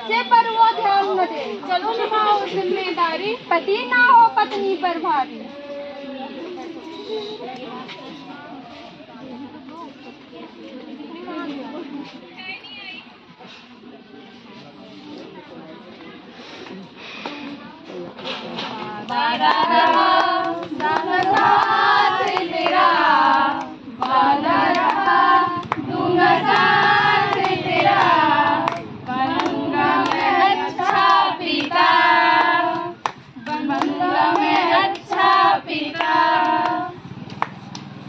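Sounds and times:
women singing in chorus: 18.6s - 37.1s
hands clapping in time: 36.0s - 37.9s.

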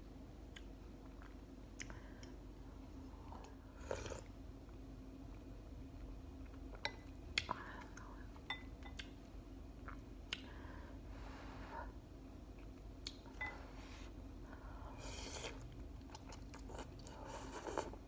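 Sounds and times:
low steady hum: 0.0s - 18.0s
mouth sounds of eating noodles: 15.0s - 18.0s.

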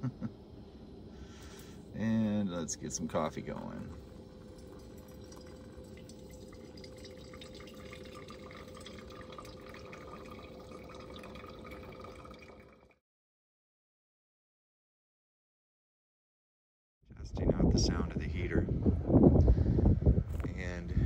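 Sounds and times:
hot water trickling into filter: 2.6s - 13.0s.

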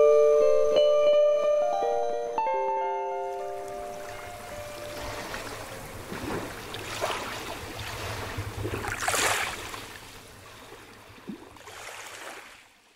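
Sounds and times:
small waves lapping on shore: 3.3s - 12.9s.

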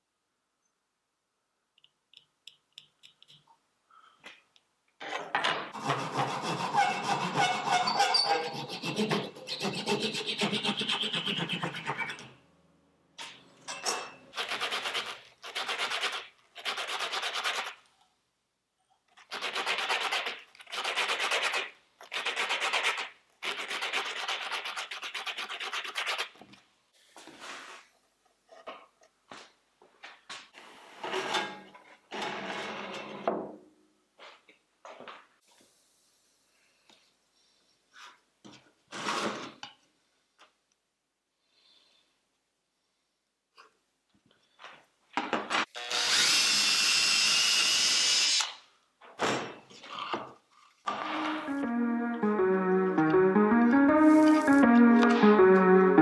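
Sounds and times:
sandpaper scrubbing wood: 14.4s - 17.8s, 22.2s - 26.3s.

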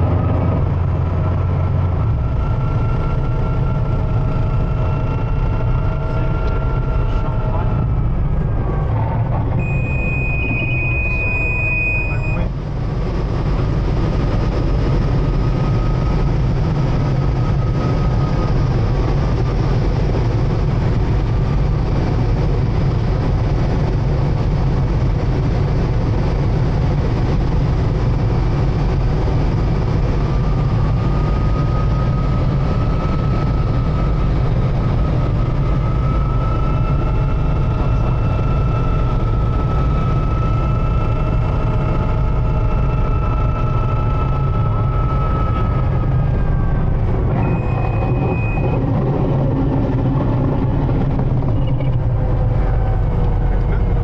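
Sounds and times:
faint whining tones: 0.0s - 54.0s
helicopter rotor and engine noise: 0.0s - 54.0s
high steady tone: 9.6s - 13.0s.

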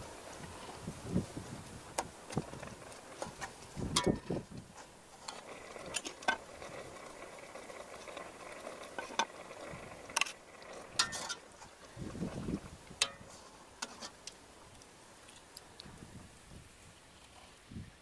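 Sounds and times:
steady low hiss: 0.0s - 18.0s
metal ladle clinking on pot: 11.0s - 11.5s, 13.0s - 13.3s.

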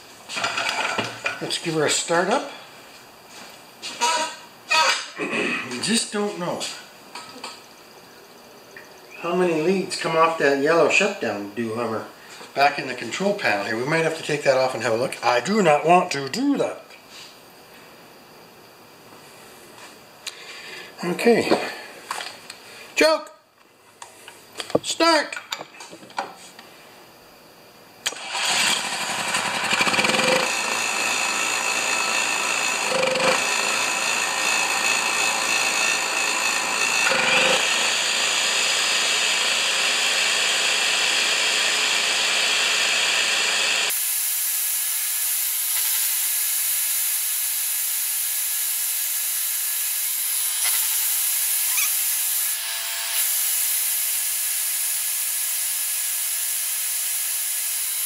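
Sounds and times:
circular saw motor whining: 28.0s - 58.0s
electric drill: 28.0s - 58.0s
generator engine running: 28.1s - 44.0s.

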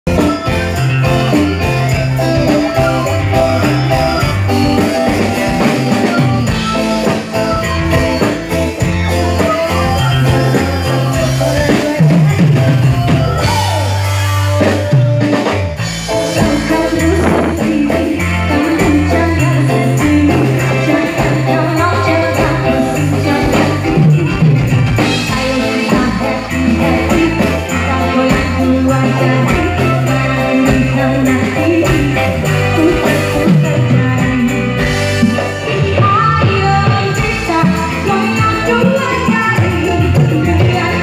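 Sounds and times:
live band playing: 0.0s - 41.0s
women singing into microphones: 16.2s - 24.4s, 25.0s - 41.0s.

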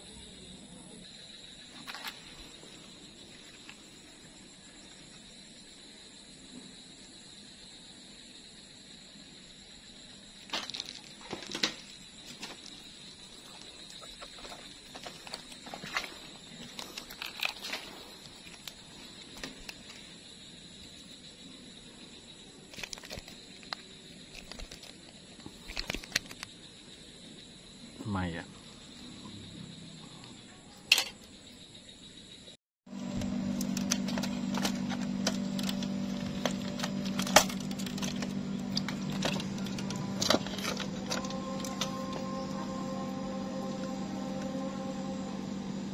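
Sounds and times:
high-pitched insect drone: 0.0s - 45.9s
sharp clicks and rustles: 22.7s - 26.5s, 33.2s - 41.9s
steady low hum: 32.9s - 45.9s.

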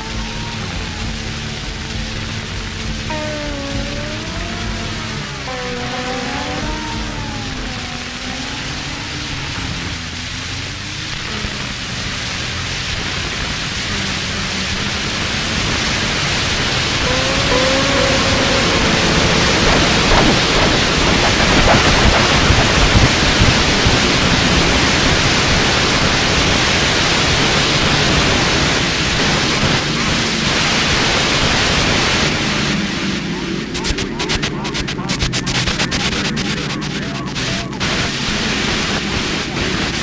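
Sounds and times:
warbling tones: 0.0s - 11.7s, 12.6s - 26.0s
low steady hum: 0.0s - 26.6s
turntable noise hiss: 0.0s - 40.0s.

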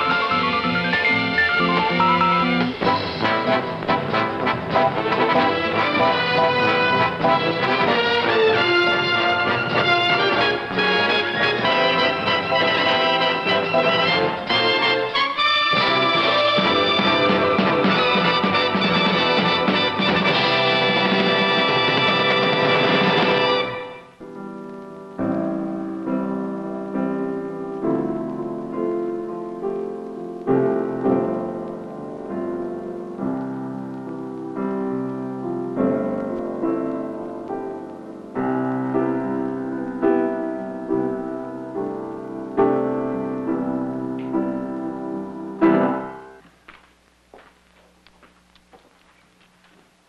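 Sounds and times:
solo piano chords: 0.0s - 7.6s, 23.4s - 46.4s
theme music: 0.0s - 24.4s.

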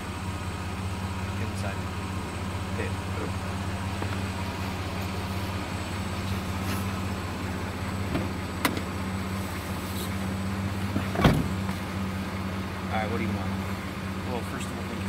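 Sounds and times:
truck engine idling: 0.0s - 15.0s
car door click: 8.1s - 8.9s, 11.0s - 11.8s.

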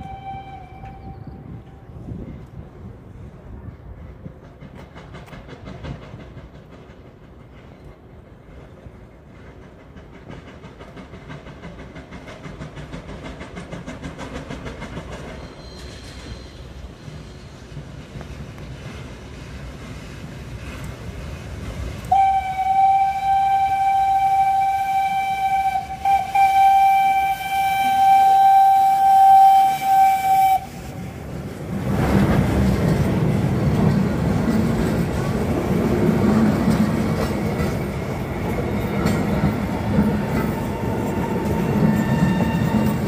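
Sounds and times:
steam locomotive whistle: 0.0s - 2.0s, 22.1s - 31.2s, 39.9s - 43.0s
train wheels on rails: 0.0s - 43.0s.

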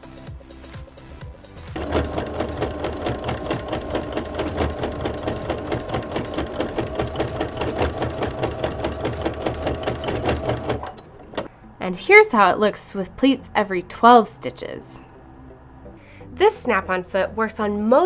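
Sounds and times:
sewing machine stitching fast: 1.8s - 11.5s.

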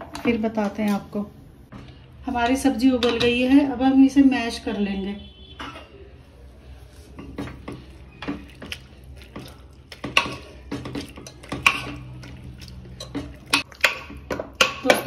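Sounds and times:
masher knocking and scraping metal pot: 9.3s - 15.0s.

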